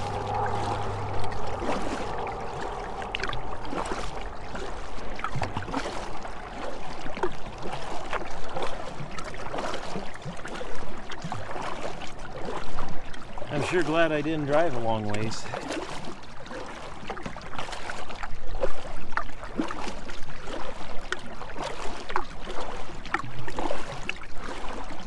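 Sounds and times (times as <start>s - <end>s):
low steady hum: 0.0s - 8.1s
paddle strokes in water: 0.0s - 25.0s
water gurgling along hull: 0.0s - 25.0s.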